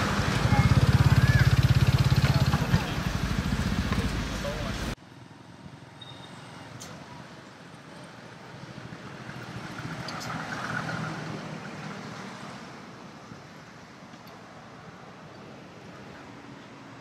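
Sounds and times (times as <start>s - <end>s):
vehicle driving past: 0.0s - 5.0s, 8.7s - 12.8s
steady traffic: 0.0s - 17.0s.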